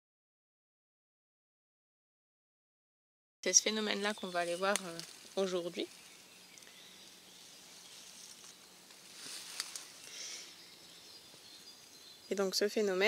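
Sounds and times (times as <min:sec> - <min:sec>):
soft hiss: 0:03.5 - 0:13.0
droppings ticking on leaves: 0:03.6 - 0:10.5.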